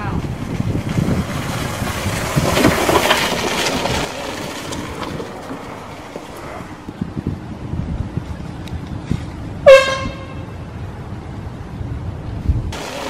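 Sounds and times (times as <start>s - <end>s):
golf cart driving past: 0.2s - 7.0s, 12.8s - 13.0s.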